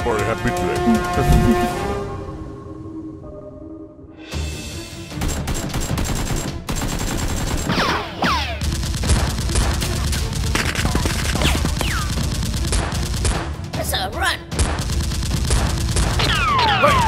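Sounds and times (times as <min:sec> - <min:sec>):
rapid gunfire bursts: 0:05.2 - 0:07.9, 0:08.6 - 0:13.7, 0:14.6 - 0:17.0.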